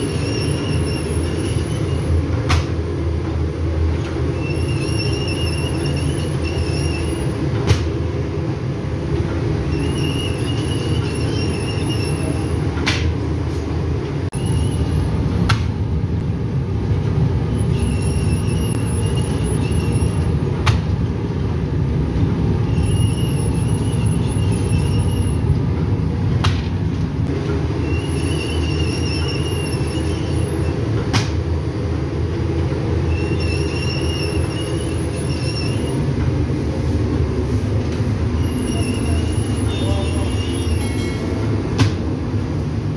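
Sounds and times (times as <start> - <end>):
high metallic squeal: 0.0 - 2.2, 4.3 - 7.5, 9.6 - 12.8, 14.3 - 15.2, 17.5 - 20.4, 22.6 - 25.6, 27.7 - 30.9, 33.0 - 36.1, 38.3 - 41.5.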